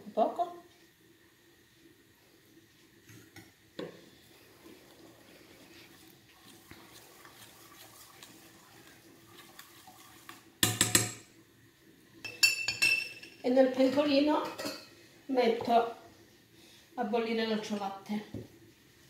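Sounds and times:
metal pots clattering: 0:12.2 - 0:15.0.

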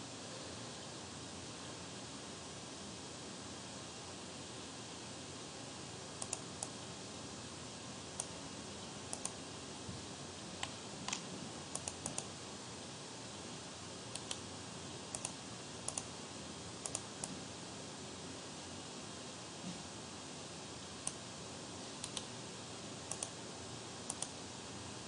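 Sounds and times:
faint steady hiss: 0:00.0 - 0:25.0
mouse buttons clicking: 0:14.2 - 0:14.4, 0:15.1 - 0:16.1, 0:22.0 - 0:22.3.

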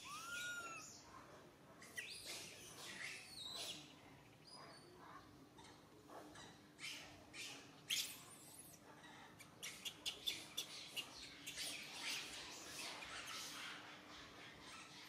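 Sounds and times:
young monkey squeaking: 0:00.0 - 0:01.0, 0:01.8 - 0:03.9, 0:06.4 - 0:08.8, 0:09.4 - 0:13.6.

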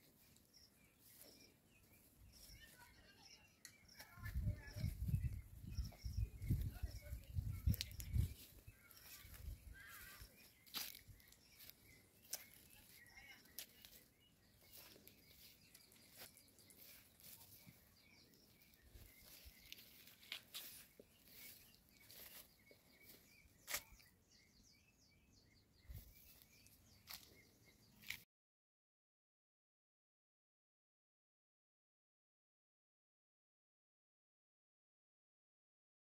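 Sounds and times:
faint high chirps: 0:00.0 - 0:24.2.

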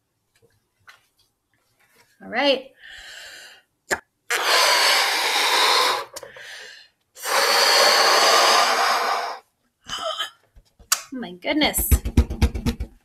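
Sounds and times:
balloon being blown up: 0:03.9 - 0:06.4, 0:07.2 - 0:09.4.

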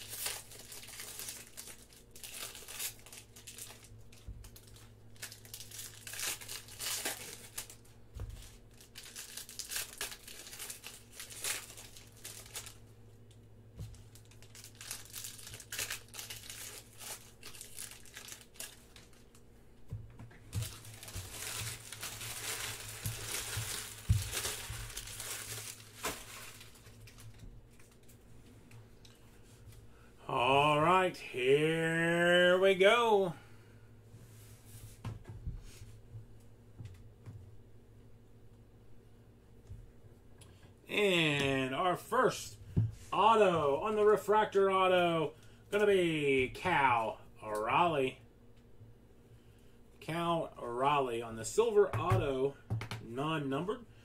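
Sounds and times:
plastic wrappers crinkling: 0:00.0 - 0:19.5, 0:20.5 - 0:28.2.

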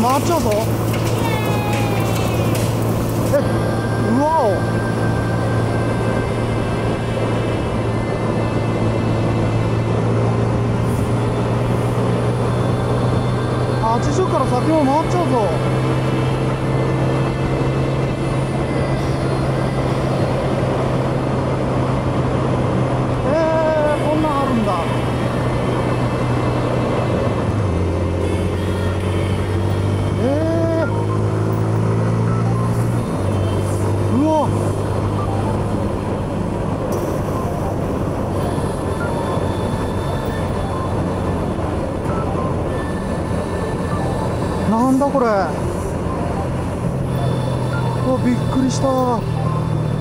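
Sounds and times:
motorcycle engine cruising: 0:00.0 - 0:50.0
wind and road noise: 0:00.0 - 0:50.0.

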